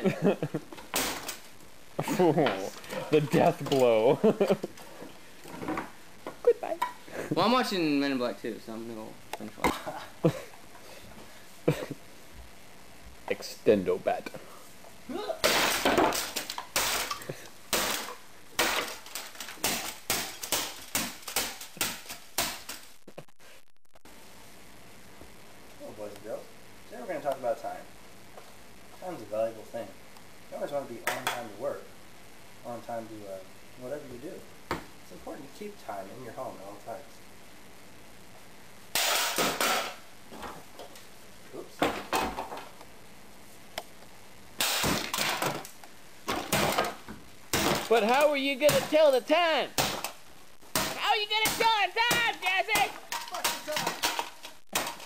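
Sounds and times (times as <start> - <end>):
metal baton smashing plastic debris: 0.9 - 1.5, 15.4 - 22.9, 38.9 - 40.0, 44.6 - 45.7, 46.3 - 48.0, 49.8 - 55.0.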